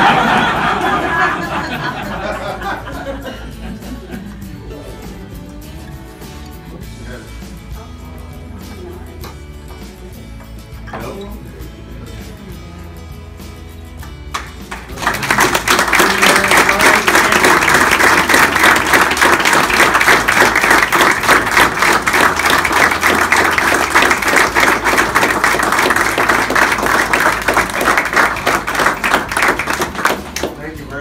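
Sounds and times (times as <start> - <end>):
people applauding: 14.3 - 30.8.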